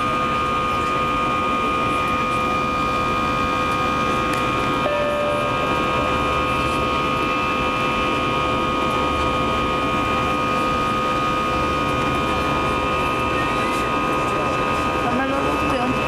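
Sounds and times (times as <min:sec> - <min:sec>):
jet engine cabin noise: 0:00.0 - 0:16.0
high whining tones: 0:04.8 - 0:07.4.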